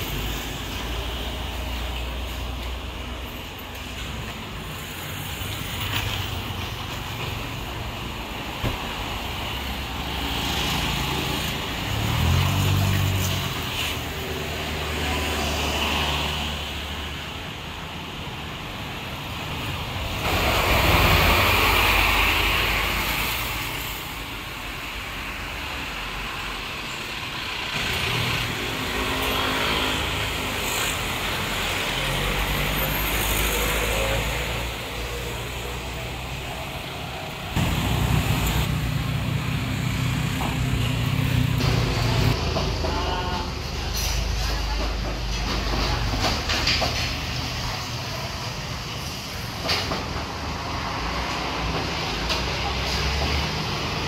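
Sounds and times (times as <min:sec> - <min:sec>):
vehicles passing: 0:00.0 - 0:54.0
loud vehicle passing: 0:09.3 - 0:17.0, 0:20.0 - 0:24.1, 0:27.4 - 0:43.8.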